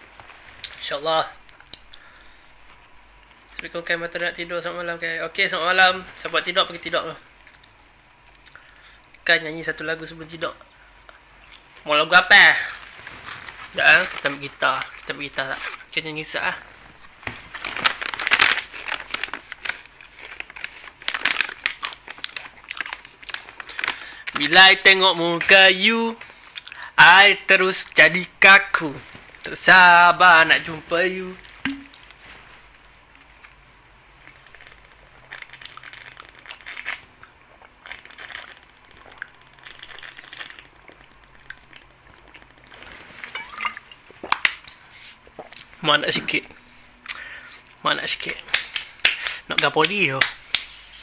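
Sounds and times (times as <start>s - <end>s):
rustling crinkling handling noise: 11.2s - 46.4s.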